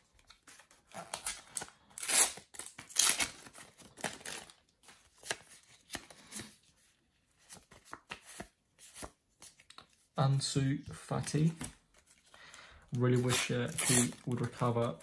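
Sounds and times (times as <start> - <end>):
foil wrapper tearing and crinkling: 0.3 - 4.6.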